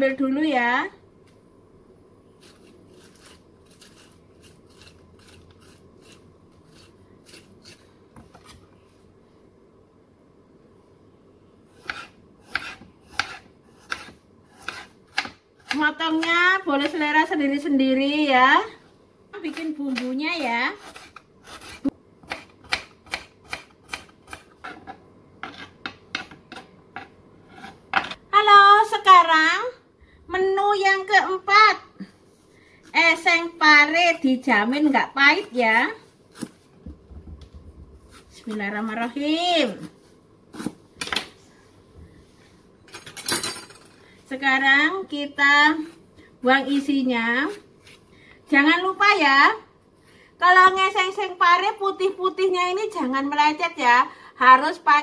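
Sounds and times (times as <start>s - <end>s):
scraping seeds out of cucumber: 2.4s - 7.8s
knife chopping on cutting board: 11.8s - 17.0s, 20.8s - 28.2s, 40.5s - 41.3s.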